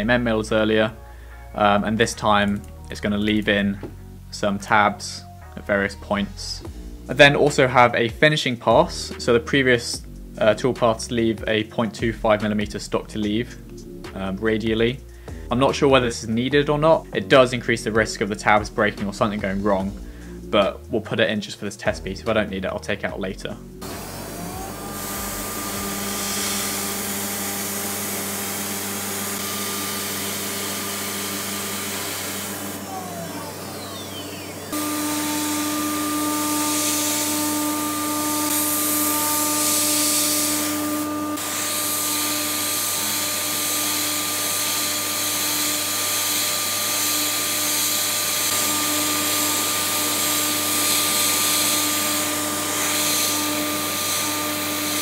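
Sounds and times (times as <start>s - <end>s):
cnc router spindle whine: 23.8s - 55.0s.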